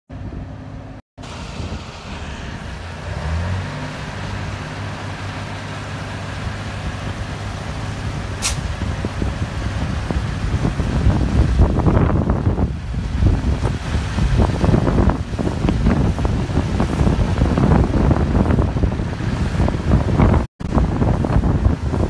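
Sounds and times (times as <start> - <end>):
fire truck engine running: 0.2 - 22.0
short sharp hiss: 8.4 - 8.7.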